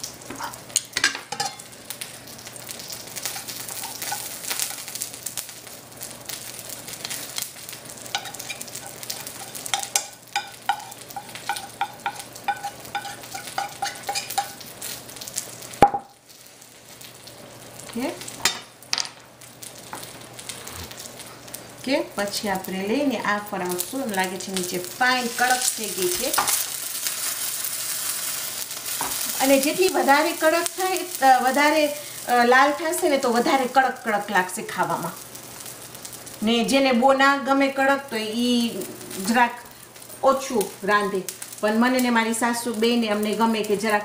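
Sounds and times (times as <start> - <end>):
tortilla sizzling: 0.0 - 44.0.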